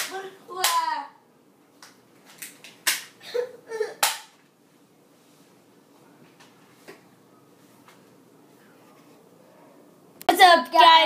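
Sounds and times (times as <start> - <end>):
sharp smacks or claps: 1.8 - 3.2, 4.0 - 4.4
child crying: 3.2 - 4.0.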